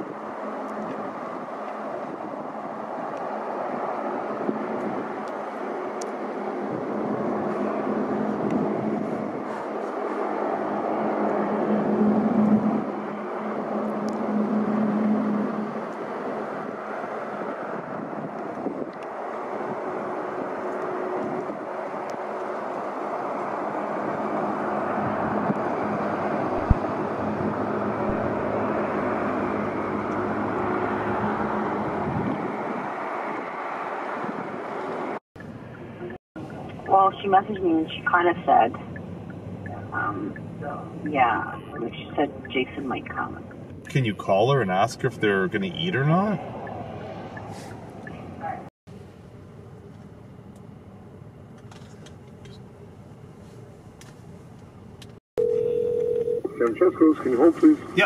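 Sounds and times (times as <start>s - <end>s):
engine rumble: 0.0s - 58.0s.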